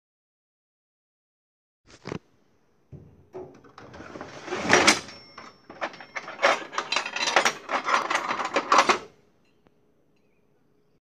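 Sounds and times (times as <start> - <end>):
metal clicking and rattling: 3.0 - 9.2.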